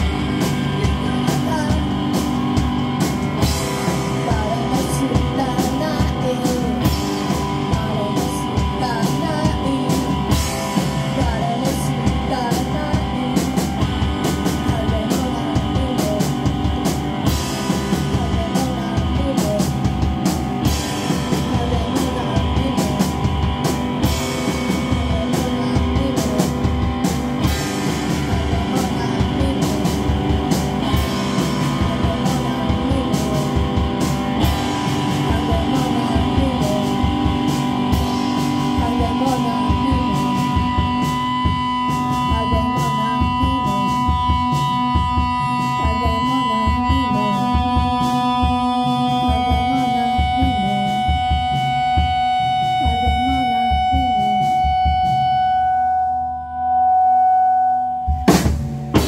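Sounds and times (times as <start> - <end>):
woman singing: 0.0 - 55.4
drum kit beat: 0.0 - 56.2, 58.0 - 59.0
electric guitar: 0.0 - 59.0.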